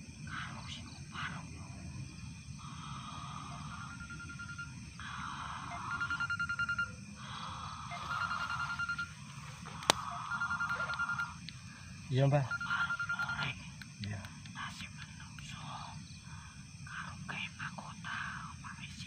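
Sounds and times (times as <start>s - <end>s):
phone ringing: 3.8s - 4.7s, 5.7s - 7.0s, 7.9s - 9.2s, 10.1s - 11.4s, 12.5s - 13.4s.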